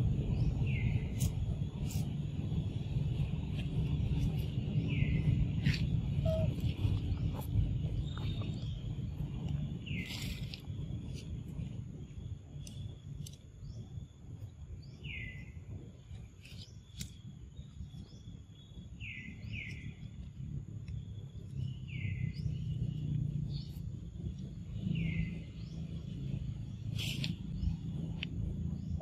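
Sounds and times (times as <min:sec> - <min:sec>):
low outdoor rumble: 0:00.0 - 0:29.0
high chirping calls: 0:04.8 - 0:08.9.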